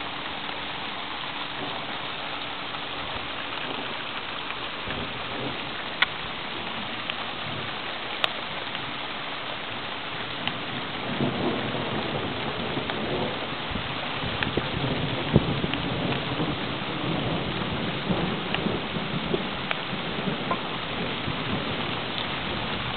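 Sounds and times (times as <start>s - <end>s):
rain hiss: 0.0s - 22.9s
thunder rumbling: 3.0s - 7.8s, 10.4s - 22.9s.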